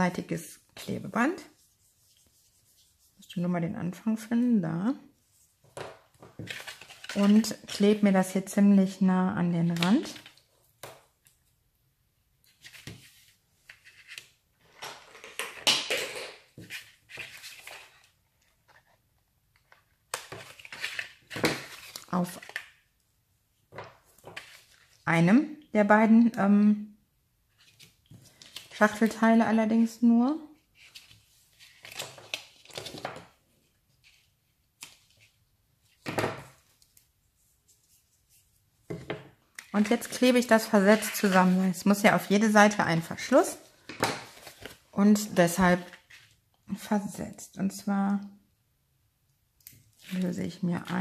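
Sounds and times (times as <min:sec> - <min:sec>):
paper rustling and scraping: 0:05.6 - 0:08.2, 0:12.5 - 0:14.7, 0:16.6 - 0:18.9, 0:20.2 - 0:22.6, 0:24.0 - 0:25.0, 0:30.7 - 0:33.2, 0:39.7 - 0:42.4, 0:43.8 - 0:46.4.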